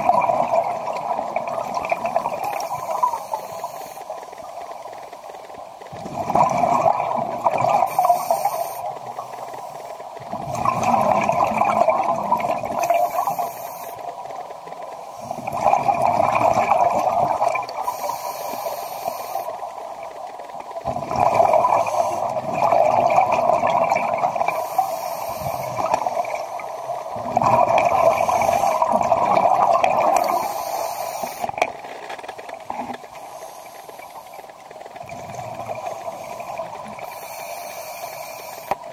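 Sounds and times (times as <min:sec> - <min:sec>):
bubbling exhaled air: 0:00.0 - 0:03.9, 0:05.9 - 0:08.9, 0:10.2 - 0:13.9, 0:15.2 - 0:19.5, 0:20.8 - 0:31.6
regulator inhale hiss: 0:02.4 - 0:04.5, 0:07.9 - 0:10.1, 0:12.8 - 0:14.1, 0:17.8 - 0:19.7, 0:21.7 - 0:22.4, 0:24.4 - 0:27.1, 0:28.1 - 0:29.0, 0:30.1 - 0:31.6, 0:33.1 - 0:34.6, 0:35.9 - 0:38.9.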